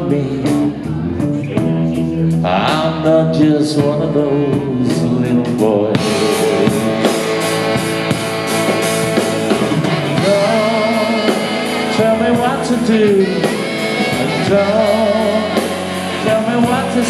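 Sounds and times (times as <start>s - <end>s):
person singing: 0.0s - 7.9s, 9.5s - 17.0s
rock band playing: 0.0s - 17.0s
saxophone melody: 6.1s - 17.0s.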